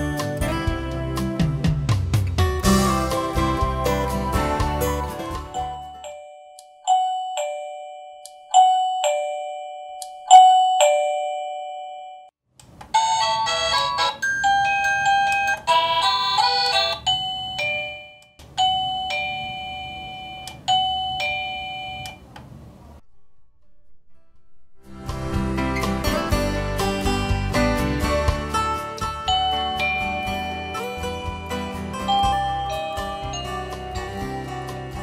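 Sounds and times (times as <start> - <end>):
doorbell ding-dong chimes: 5.6 - 12.3, 13.0 - 22.2, 29.3 - 33.9
multi-note chime melody: 29.2 - 34.2.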